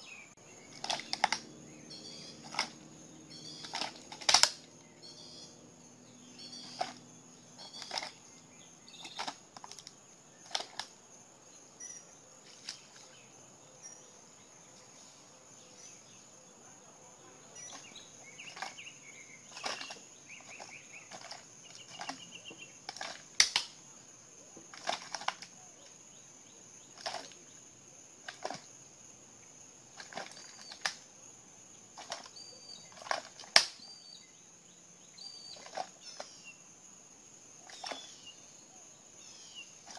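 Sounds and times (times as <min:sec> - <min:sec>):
birds chirping faintly: 0:00.0 - 0:39.9
alligator jaws crunching prey: 0:00.7 - 0:04.7, 0:06.4 - 0:11.0, 0:17.6 - 0:23.7, 0:24.7 - 0:25.5, 0:26.9 - 0:27.4, 0:28.2 - 0:28.8, 0:29.9 - 0:31.1, 0:31.9 - 0:33.8, 0:35.4 - 0:36.4, 0:37.6 - 0:38.2.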